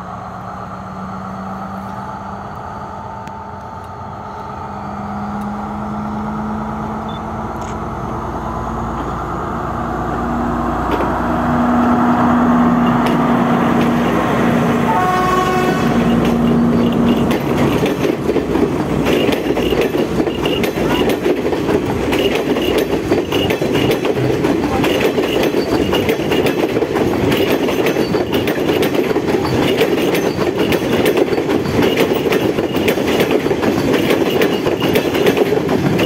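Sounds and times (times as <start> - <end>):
diesel train engine drone: 0.0 - 36.0
train carriages rolling past: 0.0 - 36.0
train horn toot: 14.8 - 16.2.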